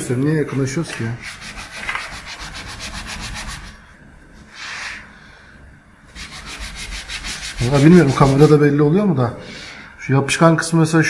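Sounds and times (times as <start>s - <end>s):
sponge scrubbing painted metal: 1.2s - 3.8s, 6.1s - 8.6s.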